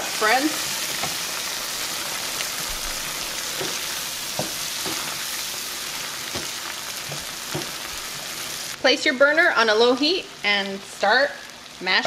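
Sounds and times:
beans sizzling in a frying pan: 0.0s - 12.0s
wooden spoon knocking pan: 3.6s - 5.1s, 6.3s - 7.8s.

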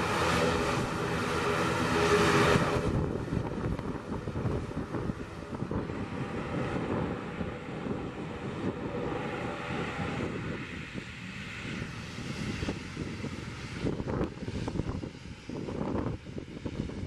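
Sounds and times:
turboprop engines running: 0.0s - 17.0s
wind buffeting microphone: 0.0s - 17.0s.

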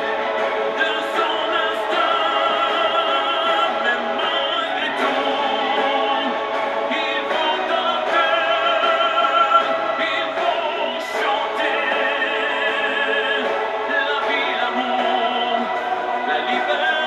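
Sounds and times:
choir singing: 0.0s - 17.0s
violins and cellos playing: 0.0s - 17.0s.

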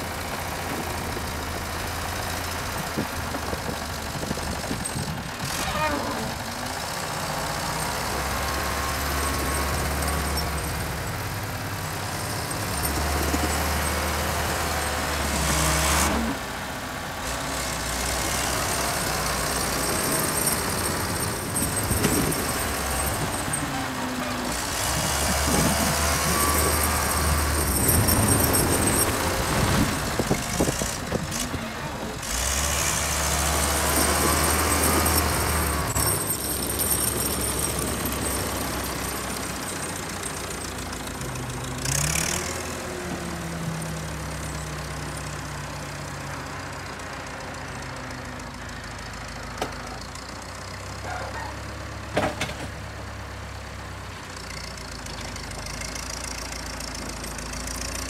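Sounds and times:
wheel loader diesel engine: 0.0s - 58.0s.

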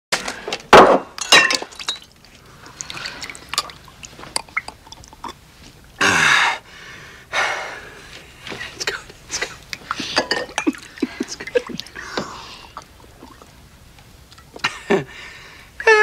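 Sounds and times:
glass and crockery clinking: 1.2s - 2.1s, 10.1s - 10.8s.

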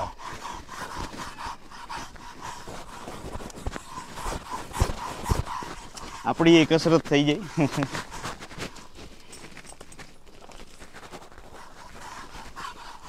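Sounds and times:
metal comb rasping on horse coat: 0.0s - 13.0s
dull thumps: 2.0s - 9.0s.

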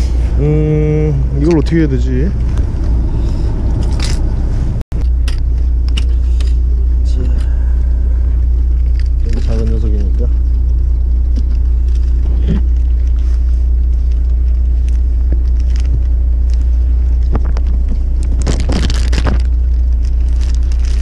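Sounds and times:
boat engine drone: 0.0s - 21.0s
rustling and clattering: 8.4s - 21.0s.

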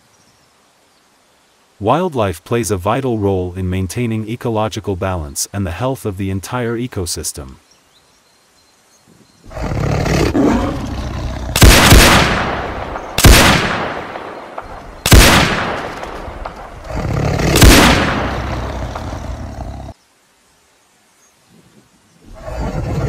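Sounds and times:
rifle shots: 11.6s - 16.8s, 17.4s - 19.1s.

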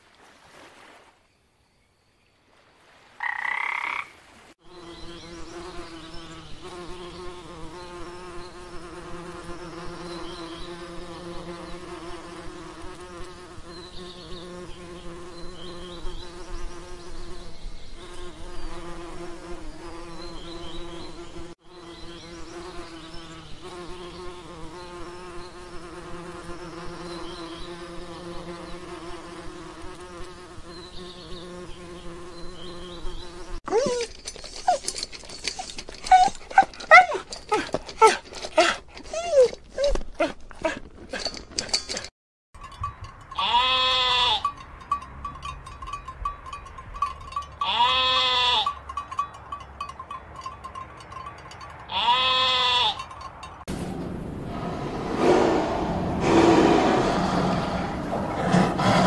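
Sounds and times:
frog croaking: 3.2s - 4.2s
bees buzzing: 53.7s - 59.0s.

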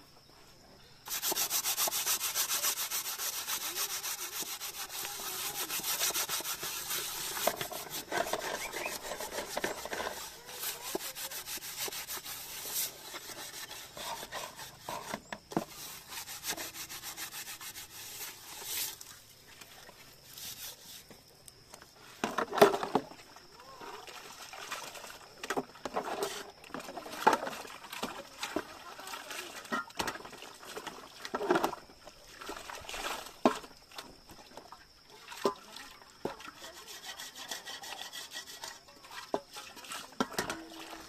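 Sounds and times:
rhythmic hand scraping: 1.1s - 19.0s, 36.6s - 38.8s.

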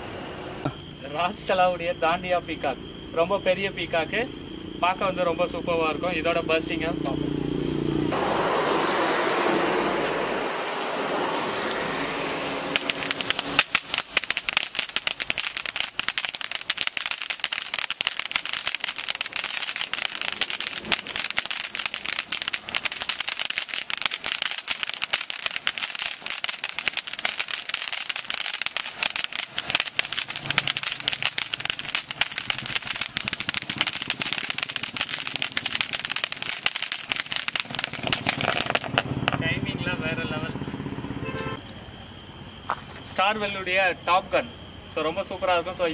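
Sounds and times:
firework fountain hissing and crackling: 8.1s - 39.6s.

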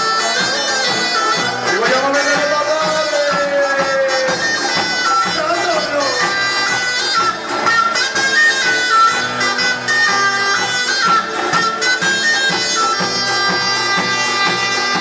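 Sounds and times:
barrels and sickles struck in beat: 0.0s - 15.0s.

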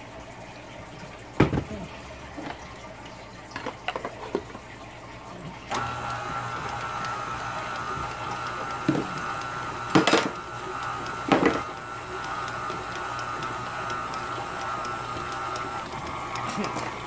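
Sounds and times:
stand mixer humming and whining: 5.7s - 17.0s.

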